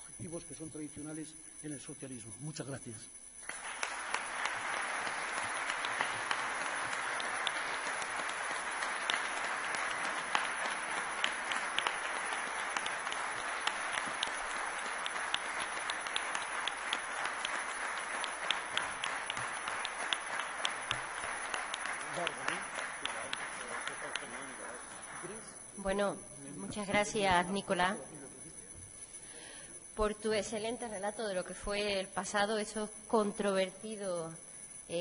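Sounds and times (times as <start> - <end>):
audience applause: 3.5 - 25.4.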